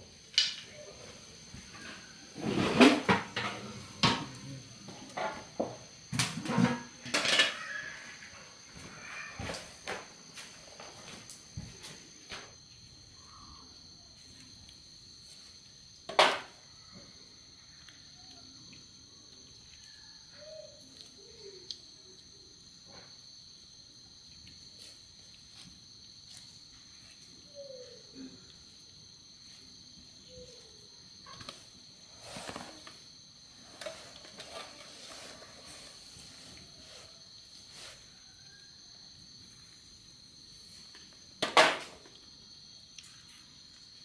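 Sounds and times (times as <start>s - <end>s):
insect chorus drone: 0.0s - 44.0s
rustling: 31.2s - 38.2s.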